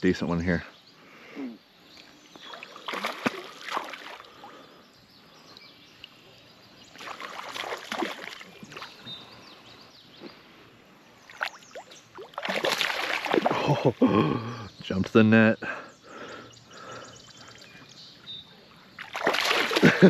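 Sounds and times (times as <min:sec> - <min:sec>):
water splashing: 0:02.5 - 0:04.4, 0:06.9 - 0:09.0, 0:11.3 - 0:14.2, 0:19.0 - 0:20.0.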